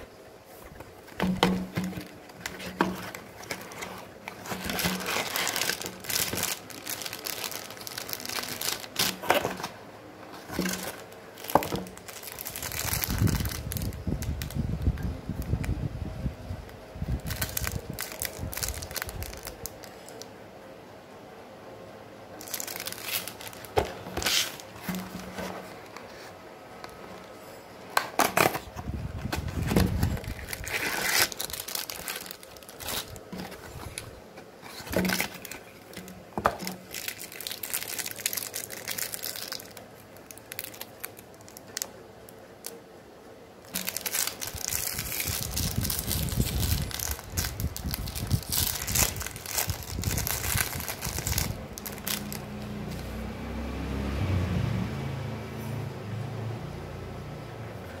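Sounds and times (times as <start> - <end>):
plastic wrappers crinkling and tearing: 0.0 - 15.8, 17.0 - 20.4, 22.3 - 42.8, 43.6 - 53.1.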